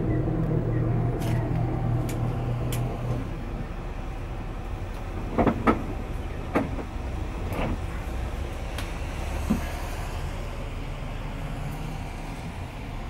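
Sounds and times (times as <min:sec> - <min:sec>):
bus diesel engine rumbling: 0:00.0 - 0:13.0.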